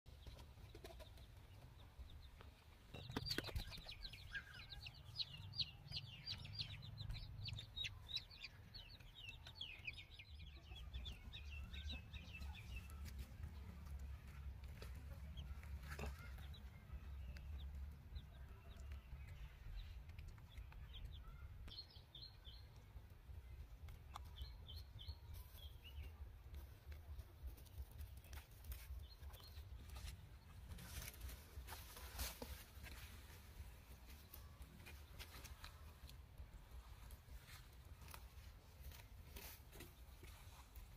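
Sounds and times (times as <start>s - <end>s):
chick peeping: 0.1s - 22.9s.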